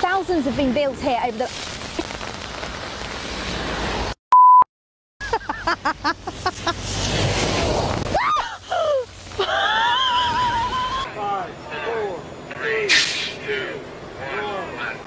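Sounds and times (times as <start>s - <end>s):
rain falling: 0.0s - 4.1s, 7.7s - 11.0s
short high beep: 4.3s - 4.7s
woman laughing: 5.2s - 6.8s, 8.2s - 11.1s
vehicle rushing past: 6.5s - 8.1s
woman screaming: 8.1s - 11.1s.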